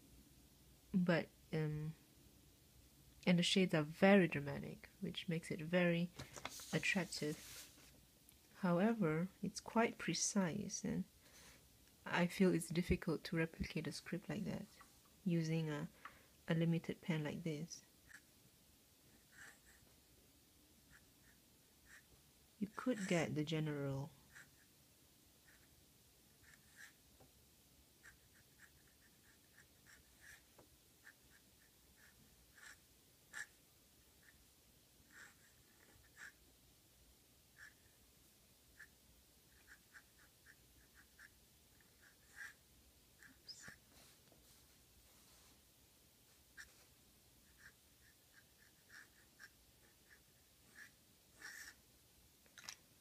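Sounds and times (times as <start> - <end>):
pen nib scratching paper: 26.4 - 27.0, 28.0 - 33.6, 35.1 - 36.4, 39.5 - 42.6, 47.4 - 51.8.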